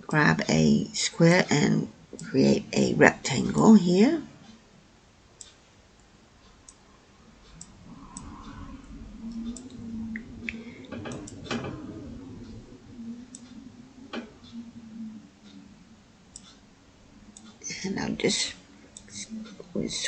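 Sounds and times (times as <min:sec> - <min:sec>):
faint low hum: 0:00.0 - 0:20.0
computer mouse clicking: 0:09.3 - 0:12.6.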